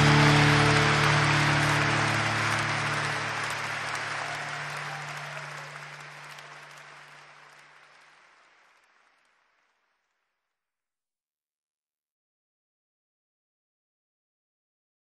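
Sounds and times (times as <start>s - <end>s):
crowd applause and cheering: 0.0s - 10.1s.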